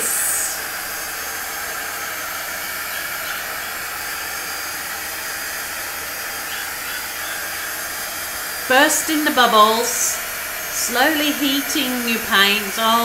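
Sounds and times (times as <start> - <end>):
heat wand blowing hiss: 0.0 - 13.0.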